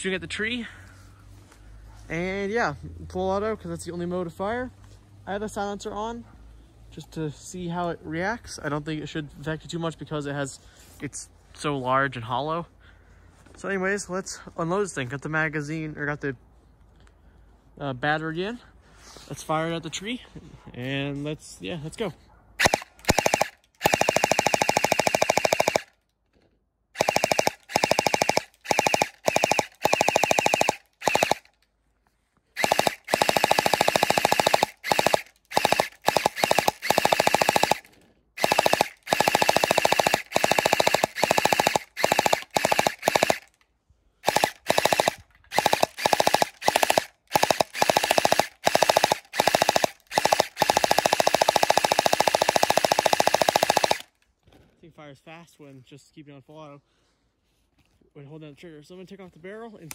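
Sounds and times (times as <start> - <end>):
gel blaster firing bursts: 22.6 - 26.0, 27.0 - 31.6, 32.6 - 43.6, 44.2 - 54.1.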